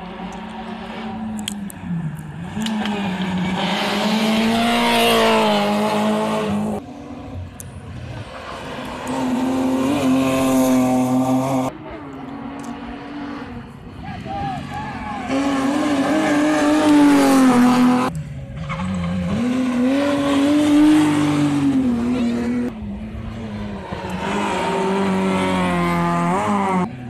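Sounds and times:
rally car engine accelerating: 0.0s - 13.6s, 15.3s - 27.0s.

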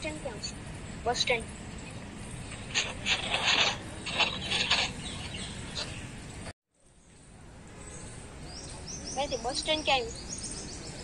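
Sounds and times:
outdoor background noise: 0.0s - 11.0s
small birds chirping: 0.0s - 11.0s.

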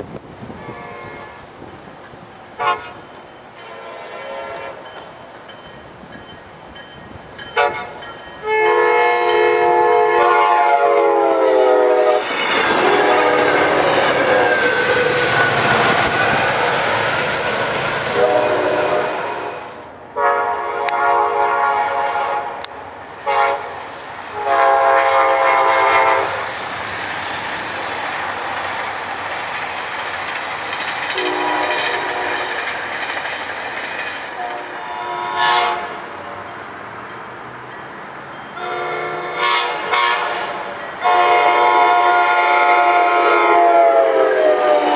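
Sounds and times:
distant train rumble: 0.0s - 44.9s
passing train rush and clatter: 0.0s - 44.9s
locomotive air horn: 0.6s - 1.5s, 2.6s - 5.0s, 7.6s - 16.9s, 18.0s - 26.4s, 31.2s - 32.6s, 34.4s - 36.1s, 38.6s - 44.9s.

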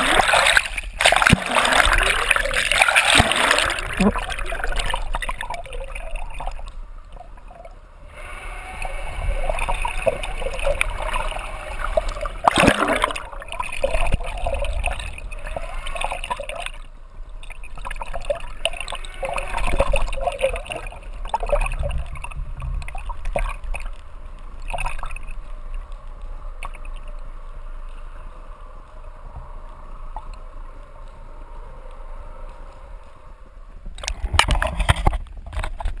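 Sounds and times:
water splashing: 0.0s - 27.3s
water sloshing and gurgling: 0.0s - 36.0s.

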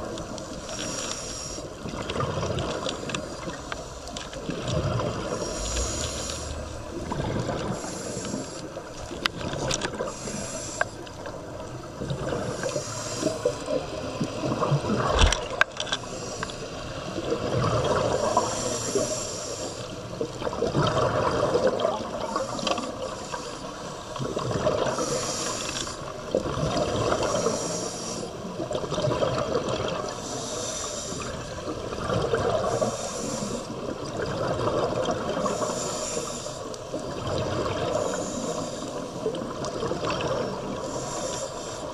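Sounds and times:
diver breathing through regulator: 0.5s - 1.8s, 5.1s - 9.0s, 9.9s - 11.1s, 12.3s - 13.9s, 15.1s - 16.9s, 18.0s - 20.0s, 24.8s - 26.1s, 27.2s - 28.5s, 30.1s - 31.6s, 32.5s - 33.8s, 35.4s - 36.8s, 37.9s - 39.2s, 40.6s - 41.9s.

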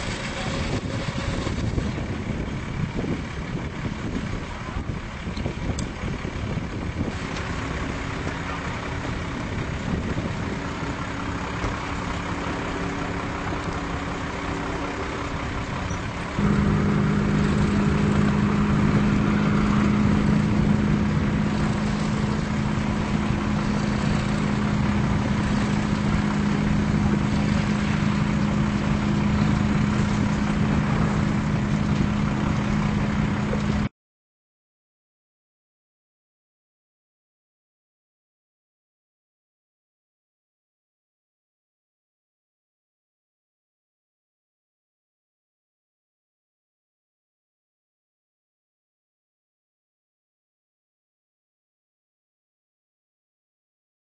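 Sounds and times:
engine humming: 0.0s - 33.9s.

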